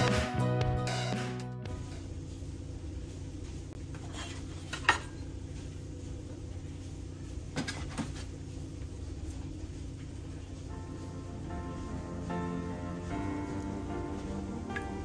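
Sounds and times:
steady low hum: 1.7s - 15.0s.

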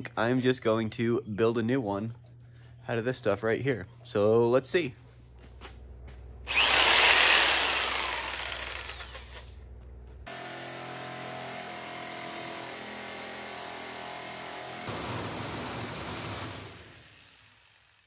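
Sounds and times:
jigsaw cutting sheet metal: 6.5s - 9.5s, 10.3s - 18.0s
loud burst of noise: 14.9s - 18.0s.

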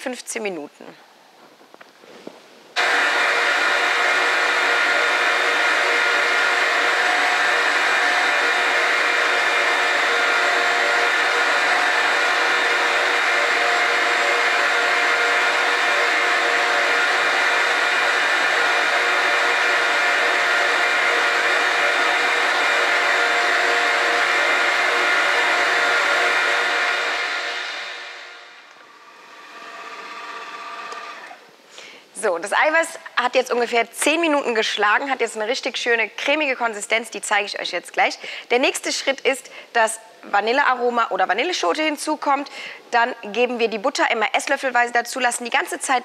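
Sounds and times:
stand mixer motor running: 2.8s - 31.4s
steady whine: 2.8s - 31.7s.

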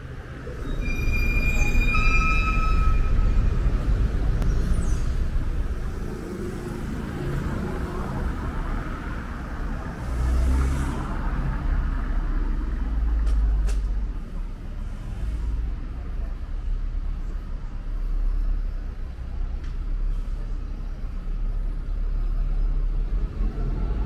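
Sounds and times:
street traffic rumble: 0.0s - 24.0s.

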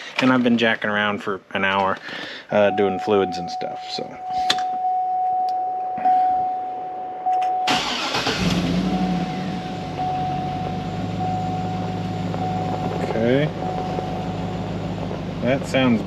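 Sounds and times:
car engine cranking and idling: 7.3s - 16.0s
steady high electronic tone: 8.6s - 16.0s.

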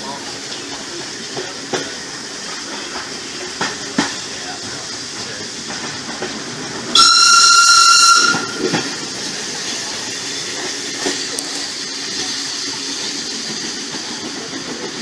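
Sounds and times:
rail clicks: 0.0s - 15.0s
train rumbling along: 0.0s - 15.0s
locomotive whistle blast: 6.9s - 8.8s.

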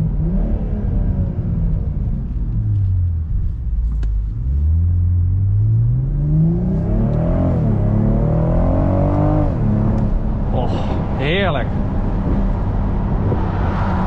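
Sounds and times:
car engine revving: 4.2s - 14.0s.

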